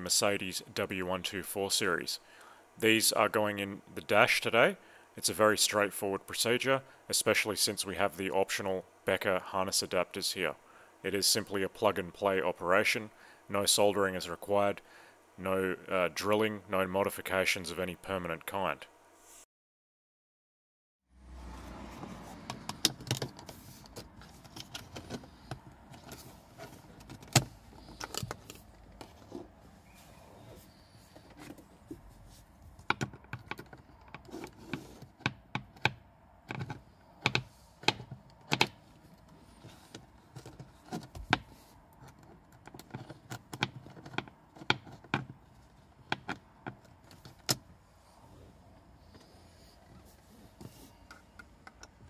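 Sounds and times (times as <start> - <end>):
plastic clicks taps and scrapes: 32.8 - 38.8.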